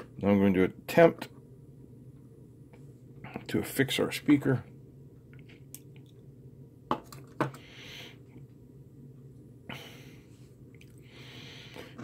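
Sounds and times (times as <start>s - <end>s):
soft breaths: 7.5s - 8.6s, 9.6s - 12.0s.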